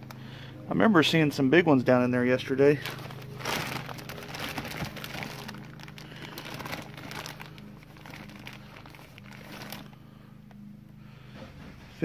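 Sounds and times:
steady low hum: 0.0s - 12.0s
plastic bag crinkling: 2.4s - 10.2s.

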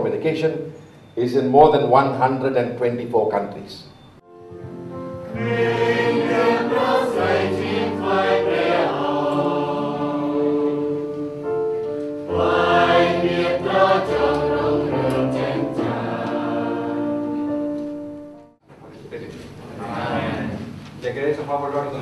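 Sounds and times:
low accompaniment: 4.2s - 21.0s
choir singing a hymn: 4.7s - 18.3s, 19.8s - 20.8s.

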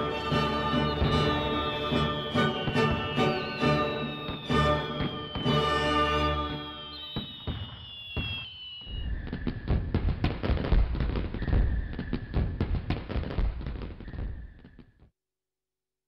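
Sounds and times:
music: 0.0s - 6.9s
fireworks bangs and crackles: 0.0s - 15.0s.

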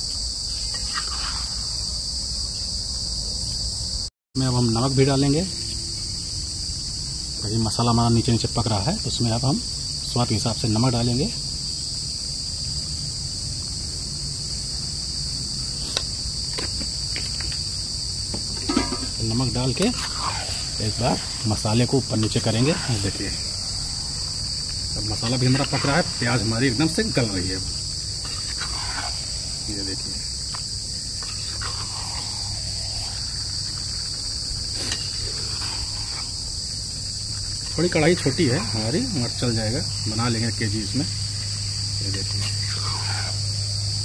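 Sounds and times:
crickets chirping: 0.0s - 44.0s
insects chorus: 0.0s - 44.0s
metal spatula scraping clay pot: 18.5s - 30.3s, 31.1s - 36.4s.

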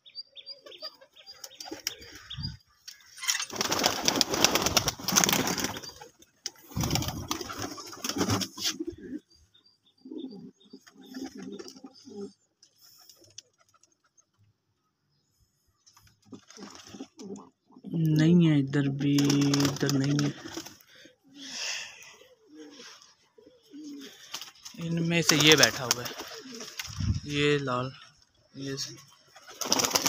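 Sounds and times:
pigeons cooing: 0.7s - 13.4s, 16.3s - 17.8s, 19.4s - 27.2s
pigeon wings flapping: 3.4s - 8.8s, 19.2s - 20.9s, 24.1s - 27.2s, 29.4s - 30.0s.

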